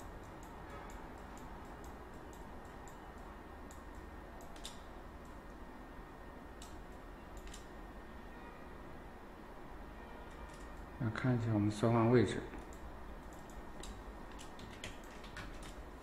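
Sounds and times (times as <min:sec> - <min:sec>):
computer mouse clicks: 0:00.0 - 0:05.6, 0:06.6 - 0:07.7, 0:12.6 - 0:15.8
low hum and hiss: 0:00.0 - 0:16.0.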